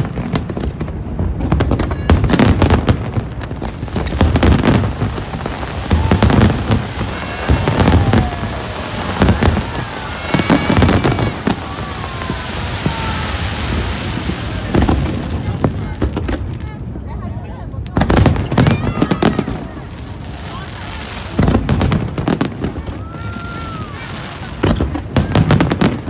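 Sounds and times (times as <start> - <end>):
fireworks sharp cracks: 0.0 - 17.0, 17.8 - 26.0
fireworks booming: 0.0 - 26.0
whistling firework shells: 4.5 - 15.0.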